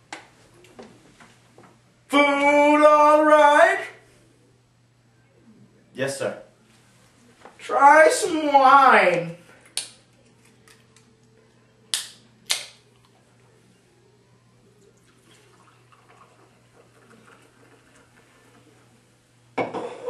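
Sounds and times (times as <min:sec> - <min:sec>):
drink pouring into glass: 0:14.8 - 0:18.6.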